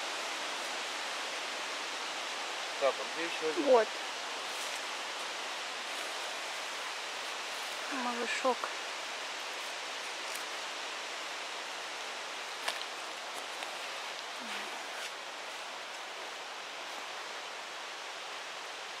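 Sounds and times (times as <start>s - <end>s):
forest background hiss: 0.0s - 19.0s
faint clicks and rustles: 12.6s - 17.2s.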